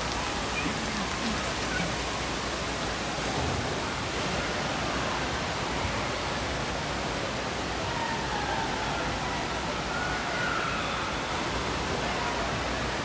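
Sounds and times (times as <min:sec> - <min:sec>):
rushing water: 0:00.0 - 0:13.0.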